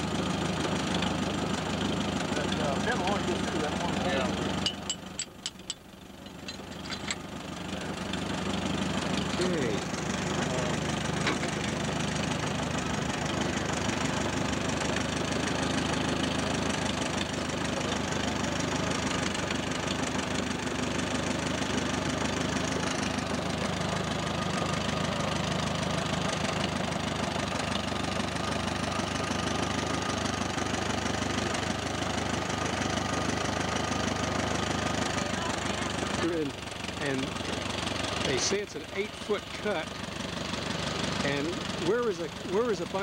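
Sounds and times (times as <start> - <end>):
tractor engine idling: 0.0 - 43.0.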